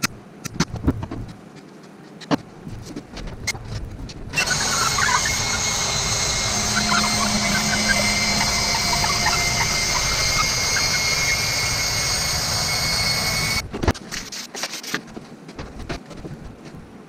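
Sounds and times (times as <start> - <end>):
cordless drill drilling: 4.4 - 13.6.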